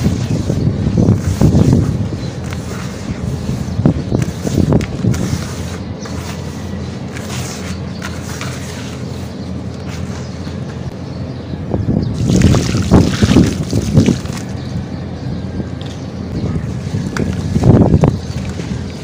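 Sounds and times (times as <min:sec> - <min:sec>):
water splashing into cement mix: 0:12.2 - 0:14.5.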